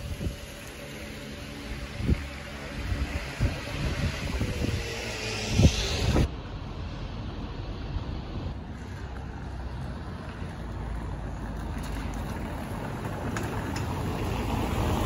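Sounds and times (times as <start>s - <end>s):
wind buffeting microphone: 0.0s - 6.4s.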